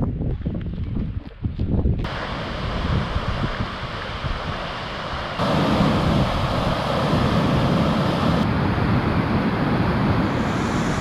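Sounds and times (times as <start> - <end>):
rushing water pouring into river: 2.1 - 8.4.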